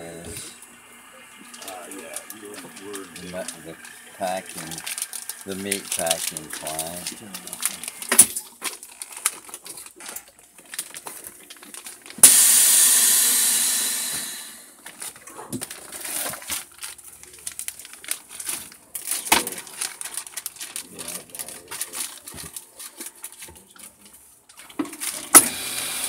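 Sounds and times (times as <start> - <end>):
vacuum sealer air hiss: 0.0 - 8.2, 12.2 - 14.8, 25.3 - 26.0
plastic bags and lid clicking: 1.5 - 12.2, 14.8 - 25.4.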